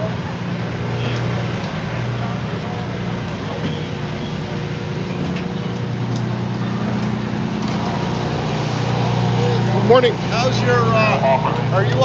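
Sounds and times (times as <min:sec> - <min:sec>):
fire engine motor droning: 0:00.0 - 0:12.0.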